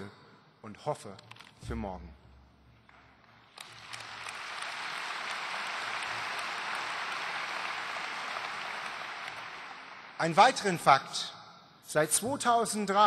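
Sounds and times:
audience applauding: 3.5 - 10.3.

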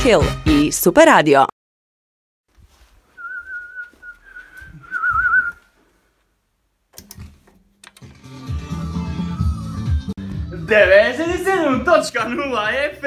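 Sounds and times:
person whistling: 3.2 - 5.7
sharp clicks: 6.9 - 8.1.

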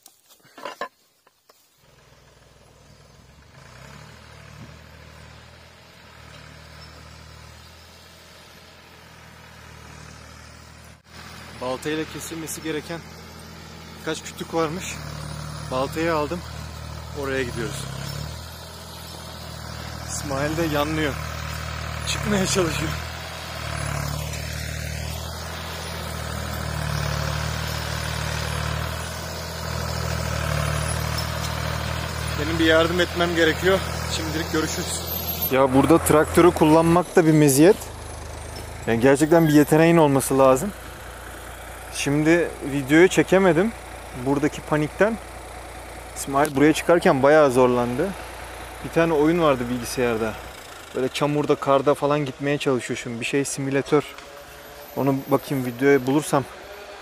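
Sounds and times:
knocks and rustles of axe handling: 0.0 - 1.6
tractor engine running: 0.0 - 57.0.

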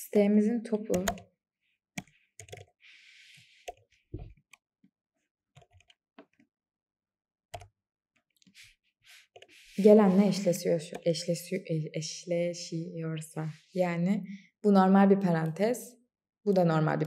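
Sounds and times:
keyboard keystrokes clicking: 0.9 - 1.2.

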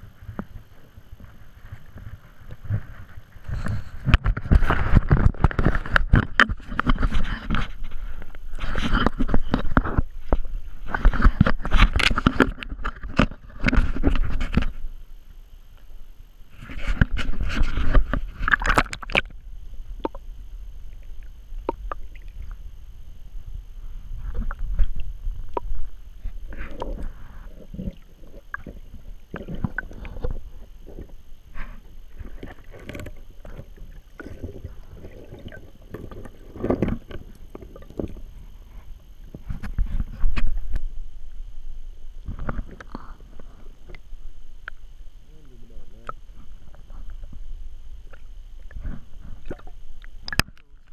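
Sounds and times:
muffled underwater sound: 0.0 - 50.9
water splashing and sloshing: 16.5 - 20.2, 24.1 - 40.8, 48.0 - 50.9.

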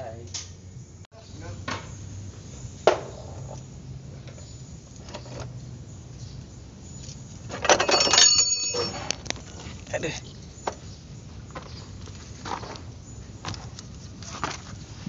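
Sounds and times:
metallic clatter with ringing: 7.5 - 9.2
metal tools clinking on metal: 7.5 - 9.3.

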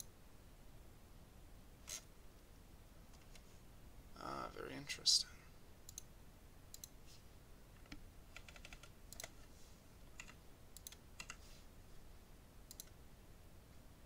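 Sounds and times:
mouse and keyboard clicks: 7.8 - 9.4, 12.7 - 13.0.

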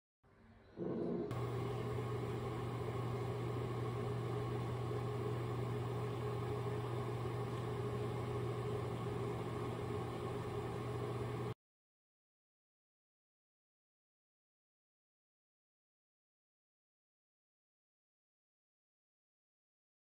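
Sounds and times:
microwave oven humming: 0.8 - 11.6.

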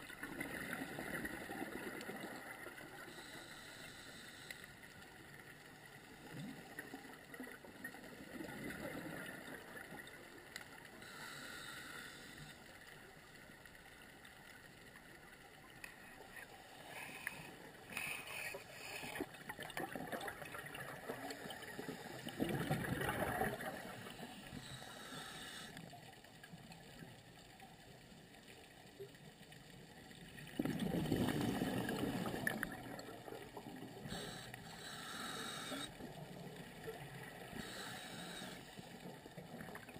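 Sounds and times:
muffled underwater wash: 0.0 - 39.9
air bubbles gurgling underwater: 19.3 - 24.2, 30.4 - 34.4.

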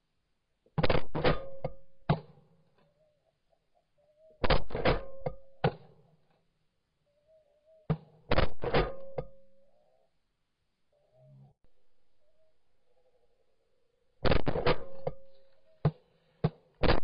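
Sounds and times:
shotgun shots: 14.2 - 15.1.

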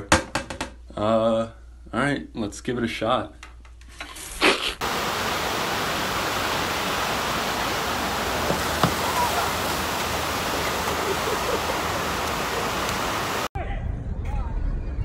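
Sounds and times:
rushing water: 4.8 - 13.5
faint knocks: 8.4 - 9.4.

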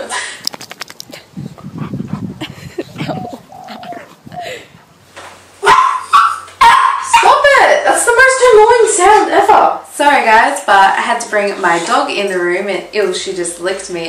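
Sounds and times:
dog whimpering: 2.1 - 4.7
dog whining: 2.8 - 4.7
dog barking: 5.6 - 7.4.

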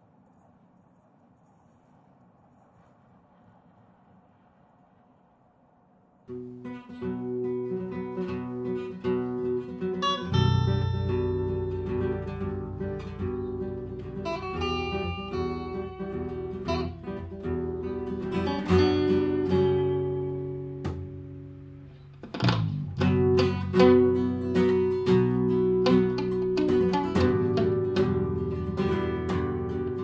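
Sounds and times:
acoustic guitar picked notes: 6.3 - 30.0
acoustic guitar strummed chords: 6.3 - 30.0.

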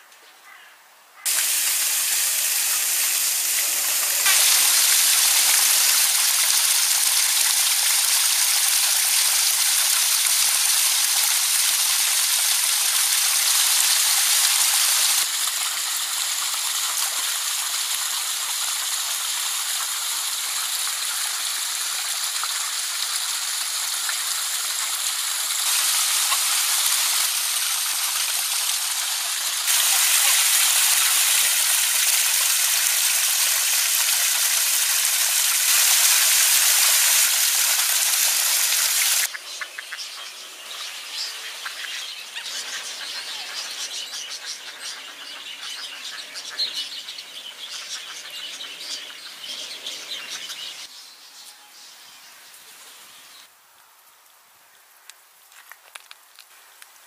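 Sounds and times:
water splashing and running: 1.3 - 39.4.

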